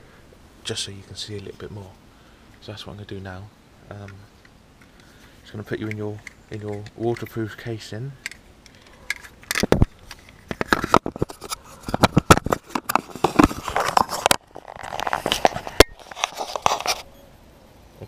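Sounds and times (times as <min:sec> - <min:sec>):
camera clicking into plastic housing: 0:08.2 - 0:11.3
scraping against microphone: 0:08.7 - 0:17.2.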